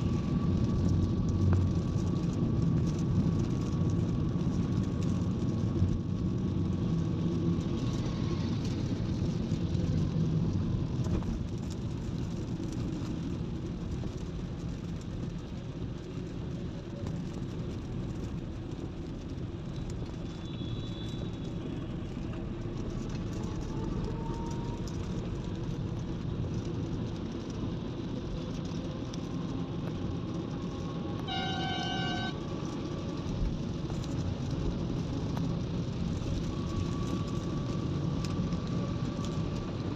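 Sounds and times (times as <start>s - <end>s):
car road and engine noise: 0.0s - 39.9s
vehicle horn: 20.5s - 21.2s, 31.2s - 32.4s.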